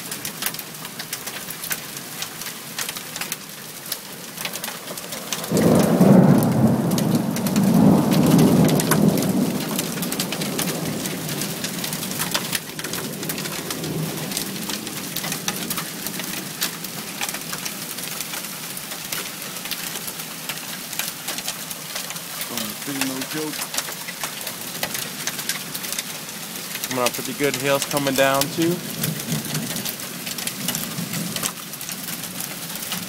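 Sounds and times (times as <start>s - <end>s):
steady rain: 0.0s - 33.0s
thunder rumbling: 5.2s - 12.3s.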